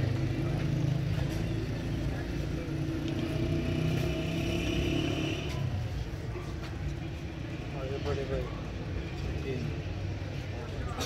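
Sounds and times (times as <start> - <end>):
higher engine tone: 0.0 - 5.9
traffic engines humming: 0.0 - 11.0.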